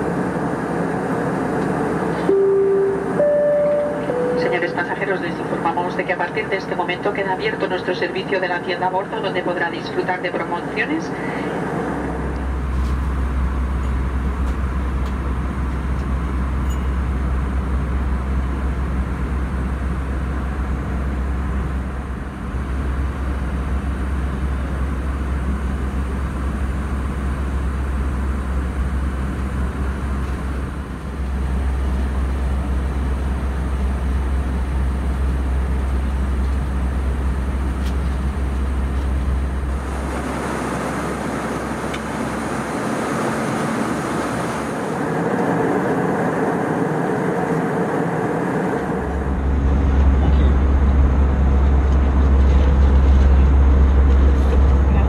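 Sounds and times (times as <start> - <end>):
aircraft cabin engine drone: 0.0 - 55.0
hissy cabin noise: 37.0 - 45.9.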